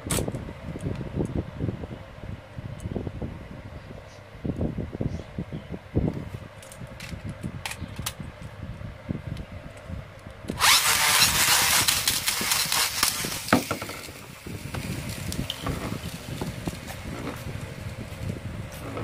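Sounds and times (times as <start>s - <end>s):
spinning top launcher gears whirring: 10.5s - 14.2s.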